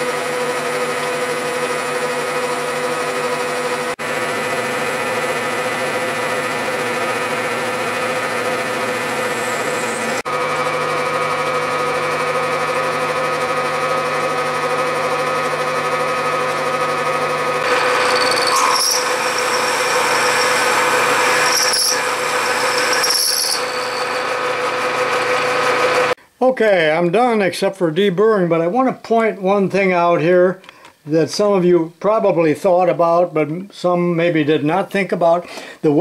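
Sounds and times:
end mill cutting steel: 0.0 - 26.2
milling machine hum: 0.0 - 26.2
high-pitched ringing from cutting: 5.5 - 12.1, 17.6 - 25.6.

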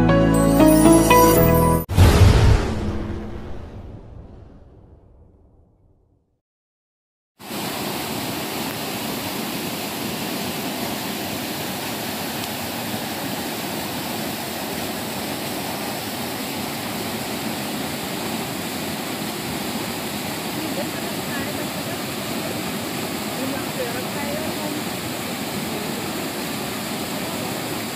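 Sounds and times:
waterfall and stream rushing: 7.4 - 27.9.

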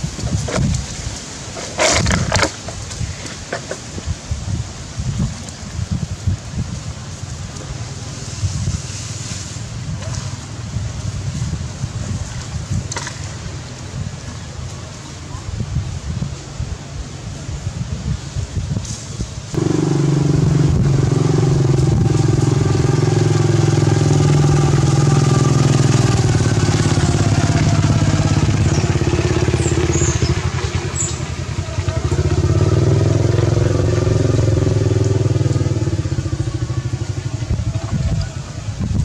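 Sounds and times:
engine running: 19.6 - 38.6.

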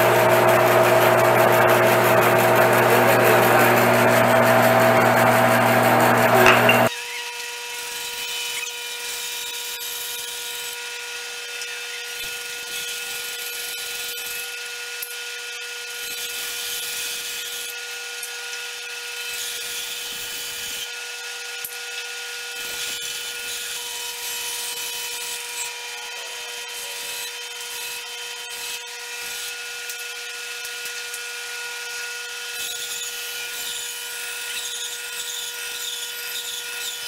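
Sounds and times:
saw blade cutting log: 0.0 - 6.9
bandsaw whining: 0.0 - 7.0.

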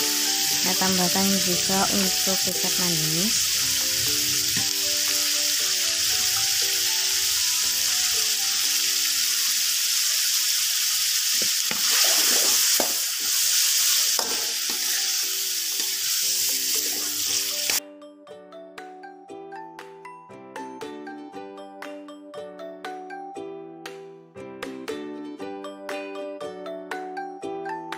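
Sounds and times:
light background music: 0.0 - 9.8, 12.6 - 27.9
food sizzling in a pan: 0.0 - 17.8
metal spatula scraping a pan: 11.7 - 17.8.

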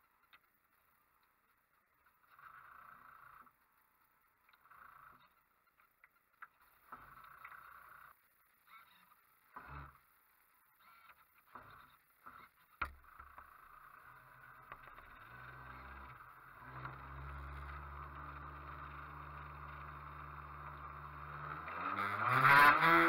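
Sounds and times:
model boat motor humming: 10.8 - 23.0.

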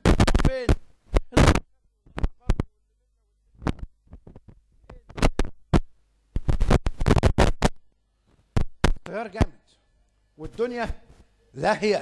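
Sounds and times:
man speaking into a microphone: 0.3 - 0.8, 10.4 - 12.0
faint low hum: 0.6 - 6.6.

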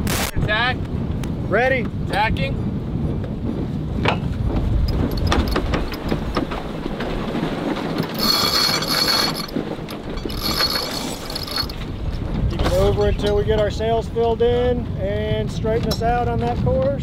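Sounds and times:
wind rumble: 0.0 - 17.0
winch ratcheting: 4.8 - 12.0.

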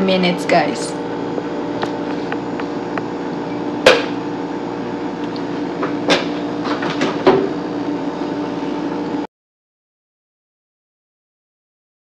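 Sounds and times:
steady hum: 0.0 - 9.3.

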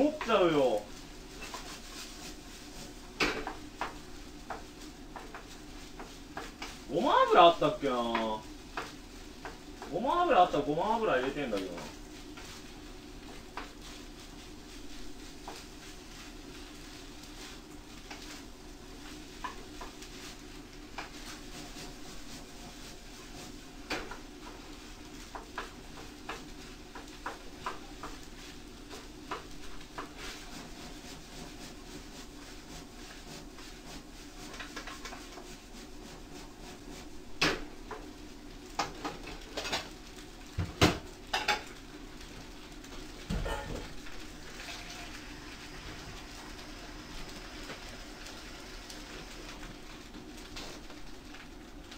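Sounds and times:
rice sizzling in a frying pan: 0.0 - 51.9
utensil scraping and clinking on pan: 43.4 - 44.0.

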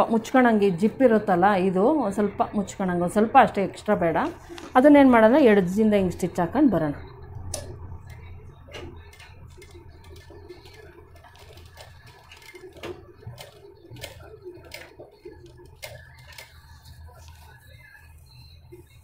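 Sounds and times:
sewing machine stitching: 8.7 - 17.0.

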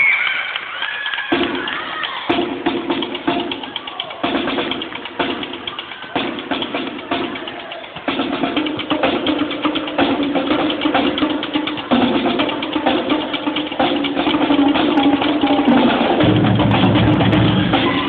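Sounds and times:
drumline playing fast cadence: 0.0 - 18.0
heavy low drum beat: 2.3 - 18.0.

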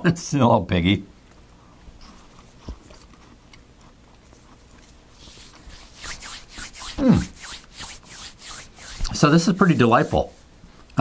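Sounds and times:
hands rubbing together: 4.8 - 10.5
person humming mmm: 6.8 - 7.4.

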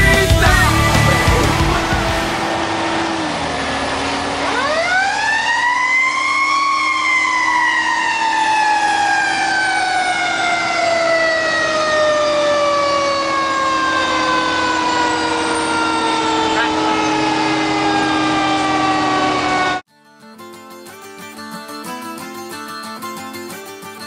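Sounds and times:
mechanical siren wailing: 0.8 - 19.8.

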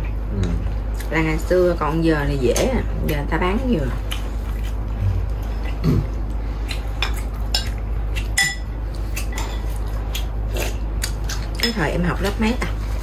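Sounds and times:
utensils clinking against ceramic bowl: 8.4 - 9.8.

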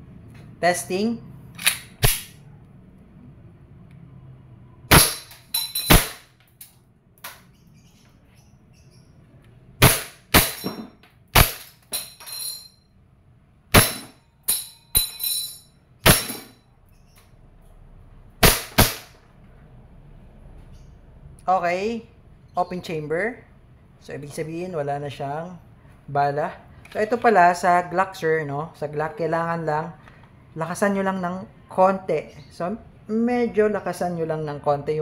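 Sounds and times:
airsoft pistol shots: 1.6 - 2.4, 4.9 - 6.3, 9.8 - 10.7, 11.3 - 11.8, 13.7 - 14.2, 16.0 - 16.5, 18.4 - 19.2.

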